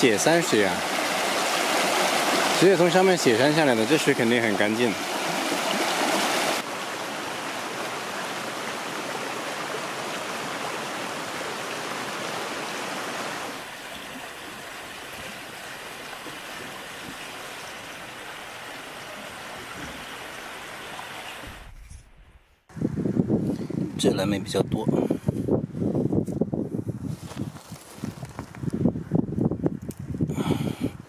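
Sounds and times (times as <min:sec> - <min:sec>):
stream rushing over rocks: 0:00.0 - 0:21.6.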